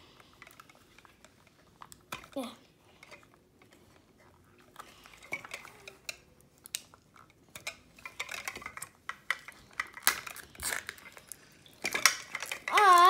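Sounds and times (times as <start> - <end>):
plastic capsules clicking and clacking: 4.7 - 13.0.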